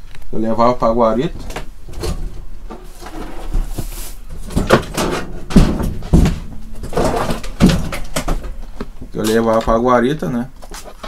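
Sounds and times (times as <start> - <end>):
objects thumping and clattering: 1.2 - 9.6
soft rustle: 1.4 - 4.6.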